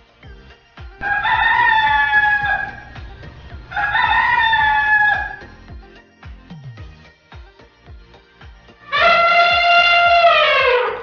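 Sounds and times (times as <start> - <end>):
background music: 0.0 - 11.0
rooster crowing: 1.0 - 5.7.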